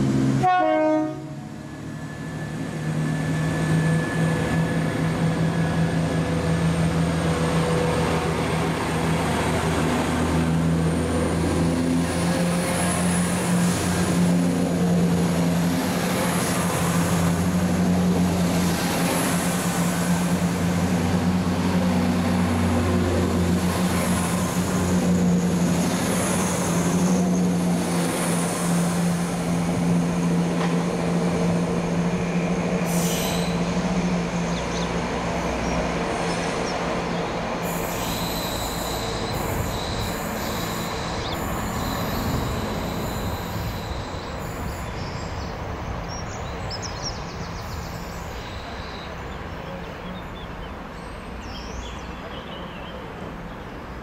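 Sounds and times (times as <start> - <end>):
diesel train engine drone: 0.0 - 54.0
rail noise: 0.0 - 54.0
thin high whine: 37.6 - 45.0.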